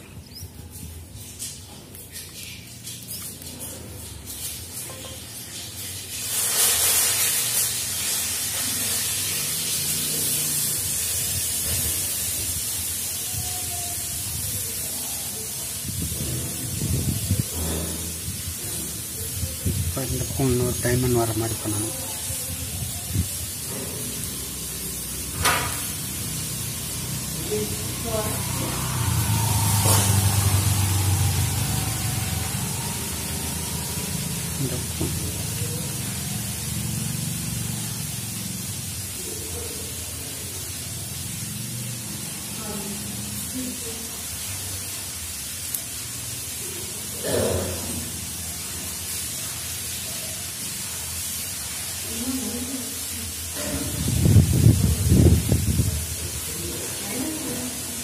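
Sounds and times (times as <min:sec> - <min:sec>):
sharp rustle: 0:00.4 - 0:09.2.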